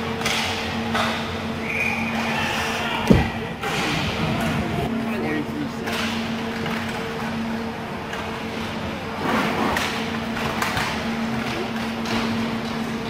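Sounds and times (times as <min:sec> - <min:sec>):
steady low hum: 0:00.0 - 0:13.0
stick and puck clacks: 0:00.2 - 0:01.3, 0:09.8 - 0:12.9.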